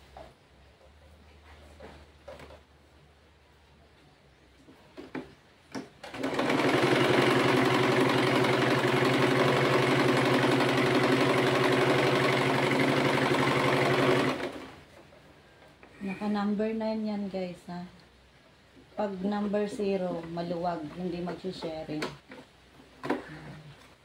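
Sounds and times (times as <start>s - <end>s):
sewing machine running: 6.0s - 14.8s.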